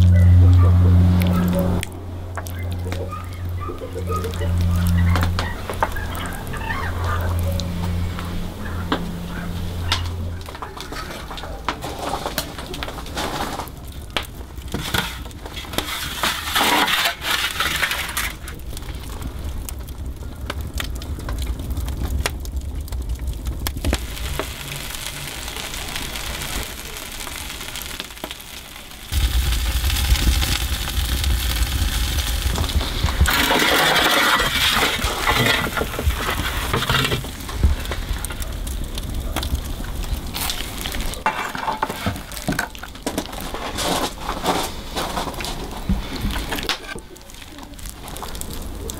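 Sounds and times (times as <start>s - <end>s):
low rumble: 0.0s - 10.6s, 29.0s - 41.2s
wood fire crackling: 0.0s - 48.9s.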